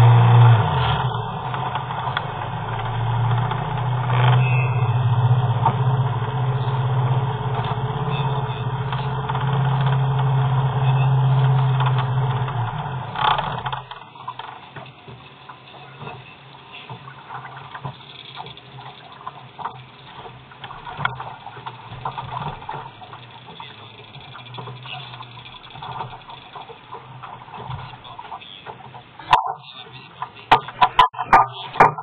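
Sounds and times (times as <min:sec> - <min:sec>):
engine shutting off with knock: 0:00.0 - 0:15.3, 0:17.8 - 0:28.1
boat engine idling: 0:00.0 - 0:32.0
faint water sounds: 0:00.0 - 0:32.0
small knocks against hull: 0:11.4 - 0:32.0.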